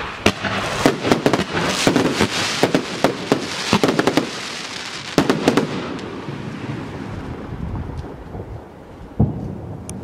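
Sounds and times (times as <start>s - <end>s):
firework bangs: 0.0s - 9.8s
hissing and crackling firework sparks: 0.0s - 10.0s.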